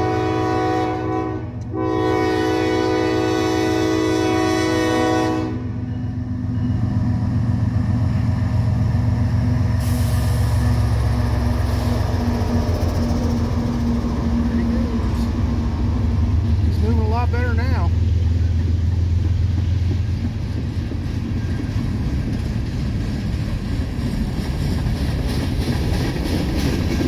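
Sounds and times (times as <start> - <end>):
locomotive air horn chord: 0.0 - 5.8
locomotive engine rumble: 0.0 - 27.0
train wheels rushing on rails: 0.0 - 27.0.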